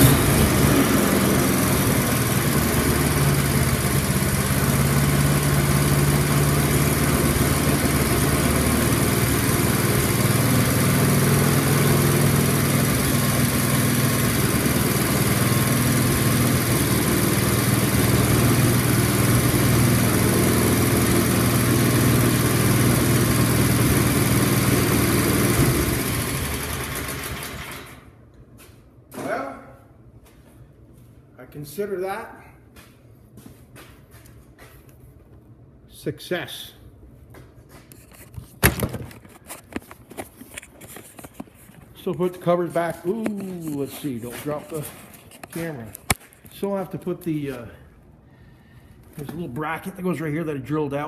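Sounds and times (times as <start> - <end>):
snowblower engine running: 0.0 - 28.1, 42.1 - 46.2.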